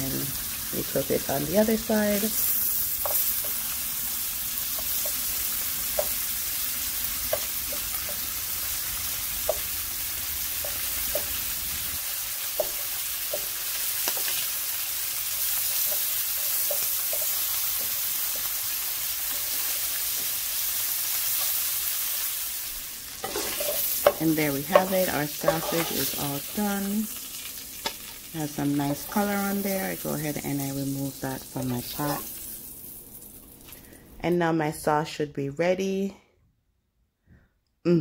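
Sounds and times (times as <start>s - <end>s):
sausage sizzling in a frying pan: 0.0s - 34.0s.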